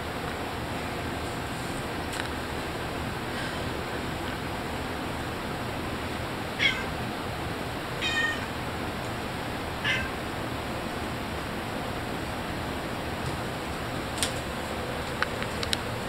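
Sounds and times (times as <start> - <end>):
cat meowing: 6.6 - 7.0, 8.0 - 8.6, 9.8 - 10.2.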